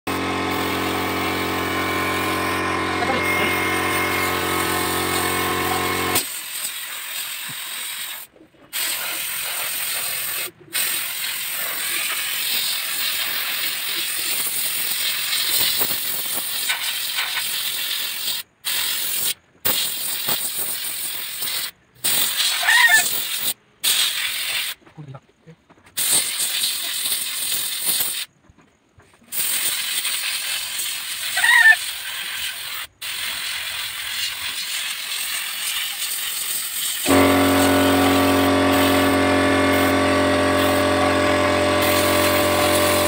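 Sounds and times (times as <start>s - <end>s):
motor hum: 0.1s - 6.2s, 37.1s - 43.0s
spray gun hissing: 0.4s - 2.6s, 3.2s - 15.7s, 32.5s - 43.0s.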